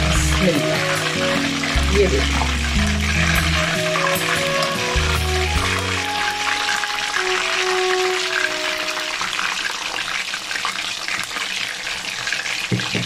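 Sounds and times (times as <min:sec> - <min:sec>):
fish deep-frying in oil: 0:00.0 - 0:13.0.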